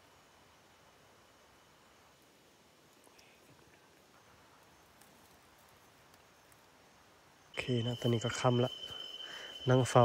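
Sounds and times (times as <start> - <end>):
faint forest ambience: 0.0 - 10.0
faint ticks: 2.8 - 6.7.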